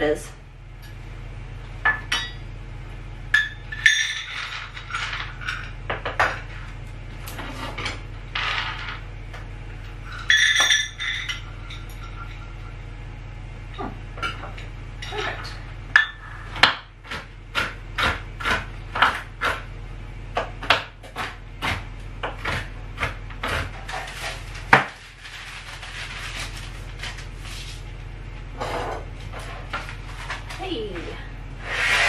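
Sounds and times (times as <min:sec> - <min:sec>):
knife chopping on plastic board: 0:16.6 - 0:19.7, 0:20.4 - 0:23.8
paper rustling: 0:24.1 - 0:27.9.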